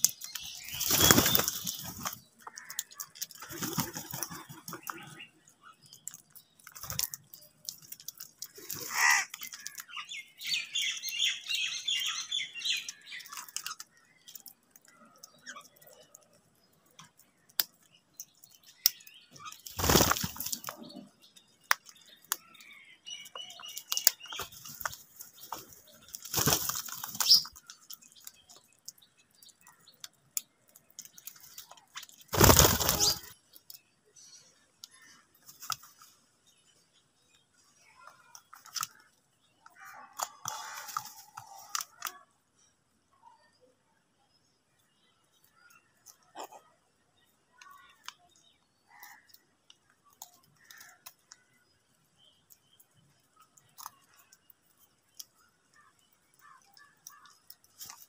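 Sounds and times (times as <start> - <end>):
high bird chirps: 0.0 - 16.2, 17.7 - 30.0, 31.1 - 35.3
crows pecking and crunching: 0.0 - 42.8, 44.9 - 58.0.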